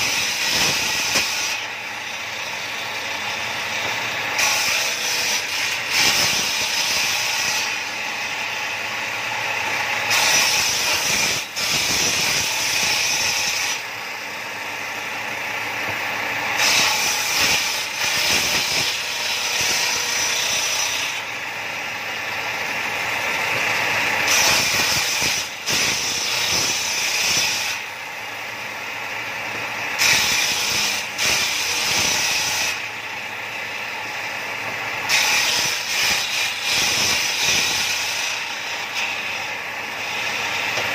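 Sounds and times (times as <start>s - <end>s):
circular saw ripping boards: 0.0s - 1.7s, 3.7s - 7.9s, 10.0s - 13.9s, 16.5s - 21.3s, 23.7s - 27.8s, 30.0s - 32.9s, 35.1s - 39.5s.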